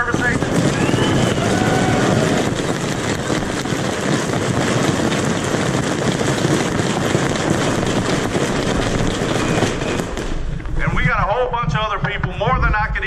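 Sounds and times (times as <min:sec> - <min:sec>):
crowd clapping: 0:00.0 - 0:10.1
crowd shouting: 0:00.7 - 0:02.6.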